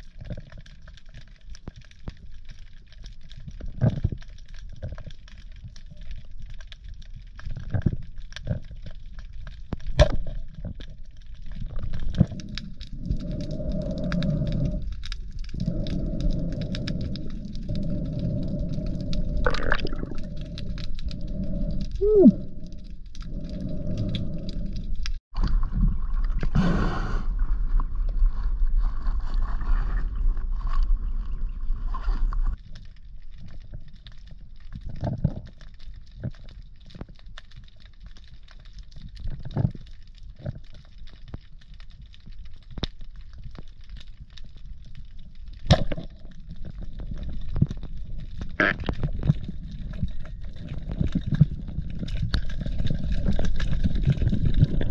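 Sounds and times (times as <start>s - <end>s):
underwater clicks and ticks: 0.0s - 26.5s, 32.3s - 54.9s
low underwater rushing: 9.8s - 32.6s, 45.7s - 54.9s.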